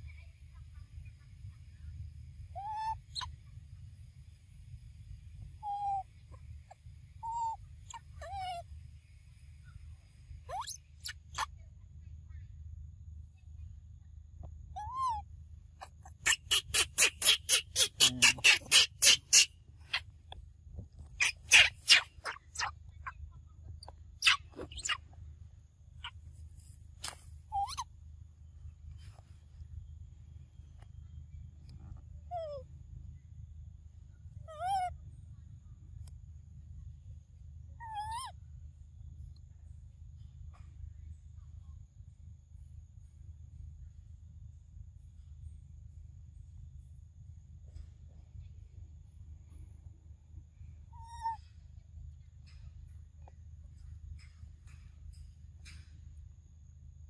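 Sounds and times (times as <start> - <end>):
young monkey coo calls: 2.6 - 3.3, 5.6 - 6.1, 7.2 - 8.6, 10.5 - 11.5, 14.8 - 15.2, 15.8 - 20.0, 21.2 - 22.8, 24.2 - 25.0, 27.5 - 27.9, 32.3 - 32.7, 34.4 - 35.0, 37.8 - 38.3, 50.9 - 51.6.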